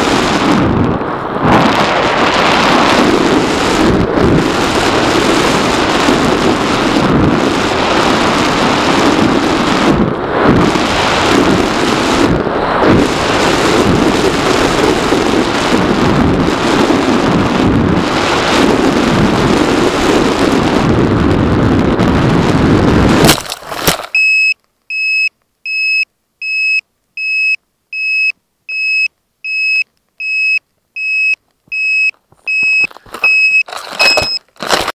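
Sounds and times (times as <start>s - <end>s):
wind rushing over camera: 0.0s - 25.3s, 25.9s - 34.9s
high electronic beeps: 24.2s - 34.4s.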